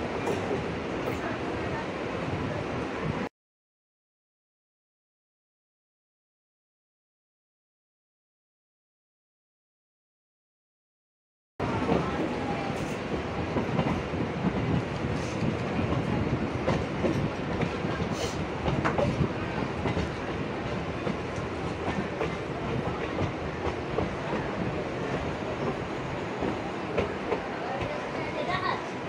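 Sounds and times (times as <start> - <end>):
train wheel rumble on rails: 11.6 - 29.0.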